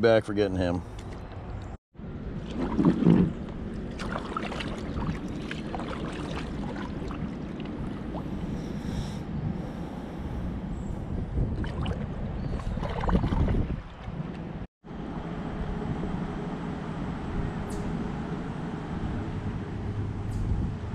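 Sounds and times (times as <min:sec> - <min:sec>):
moving river water: 0:01.0 - 0:16.2
paddle strokes splashing: 0:02.4 - 0:08.6, 0:11.6 - 0:14.0
water drips: 0:03.9 - 0:08.3.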